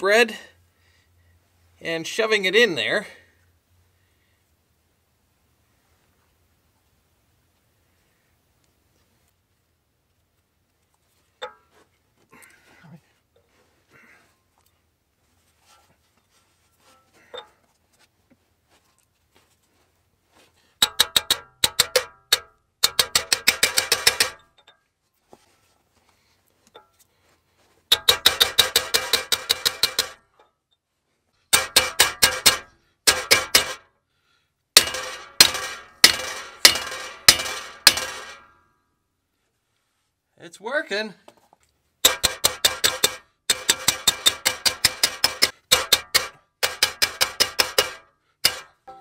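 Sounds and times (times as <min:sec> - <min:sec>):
hammer striking metal tool: 0:20.8 - 0:24.5, 0:27.9 - 0:30.2, 0:31.5 - 0:33.8, 0:34.8 - 0:38.6, 0:42.0 - 0:49.0.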